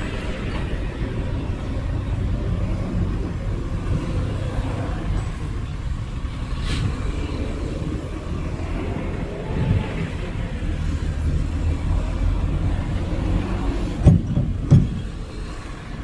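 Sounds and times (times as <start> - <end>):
diesel earthmoving equipment rumbling: 0.0 - 16.0
brief hiss: 6.6 - 7.0.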